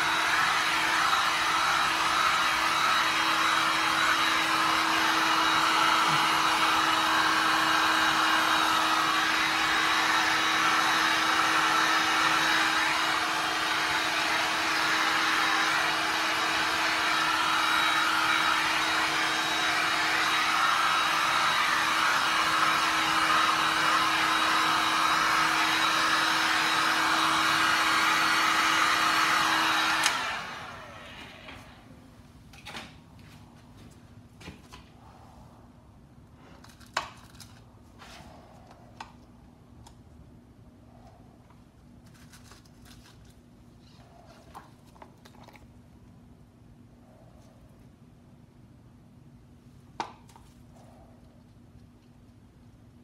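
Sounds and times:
heat gun motor hum: 0.0 - 31.8
heat gun blowing air: 0.0 - 32.0.

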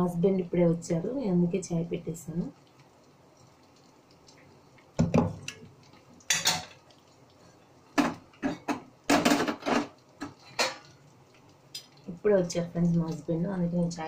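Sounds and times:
metal pots and spoon clattering: 6.3 - 6.8, 8.0 - 11.0.

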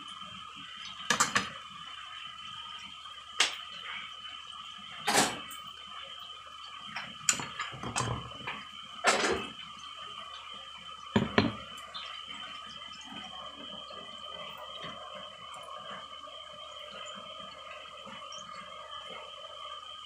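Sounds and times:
faint high hum: 0.0 - 20.0
kitchen knocks: 11.2 - 11.6.

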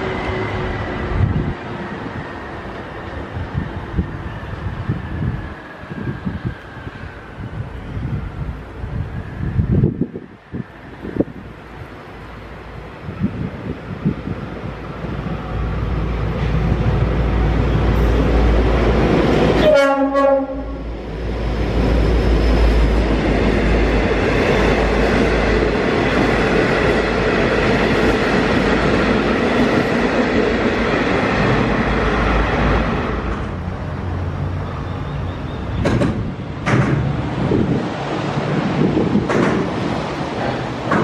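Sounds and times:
locomotive rumble: 0.0 - 41.0
train wheels on rails: 0.0 - 41.0
train horn blast: 19.6 - 20.9.

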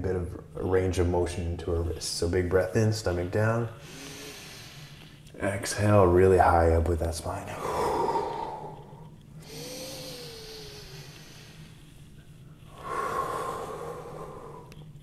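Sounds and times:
man breathing deeply: 3.8 - 5.3, 7.6 - 15.0.

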